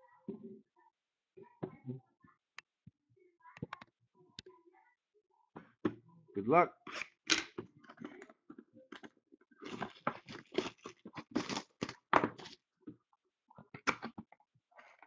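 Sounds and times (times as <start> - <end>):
plastic wrap crinkling: 9.6 - 12.6.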